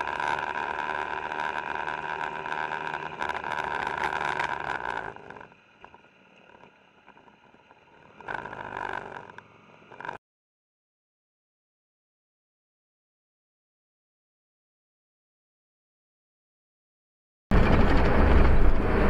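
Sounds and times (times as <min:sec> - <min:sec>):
vehicle engine and road noise: 0:00.0 - 0:10.2, 0:17.5 - 0:19.0.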